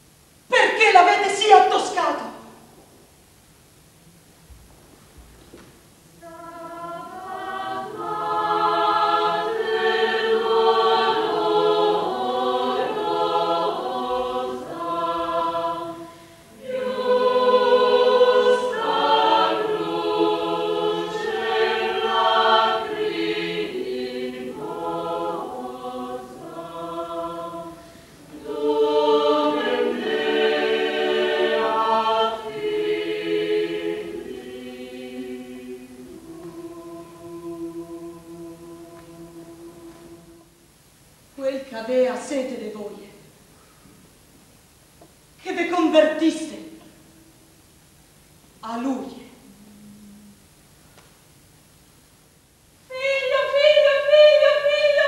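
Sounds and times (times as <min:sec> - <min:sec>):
choir singing sustained chords: 0:06.1 - 0:40.7, 0:52.8 - 0:55.0.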